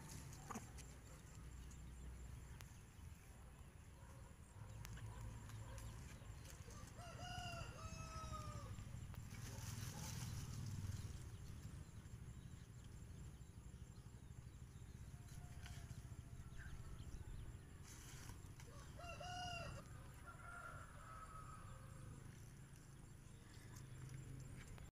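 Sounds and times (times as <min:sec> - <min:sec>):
rooster crowing: 0:07.0 - 0:08.8, 0:18.7 - 0:22.0.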